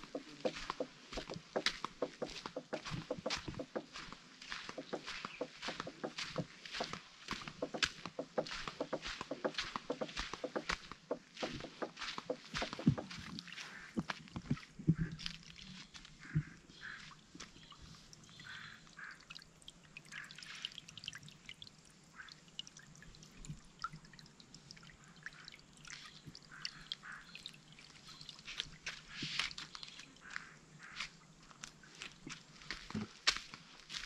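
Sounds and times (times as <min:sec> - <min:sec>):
footstep knocks: 0:04.7 - 0:13.2
stream trickling over rock: 0:11.3 - 0:16.2, 0:17.0 - 0:30.5.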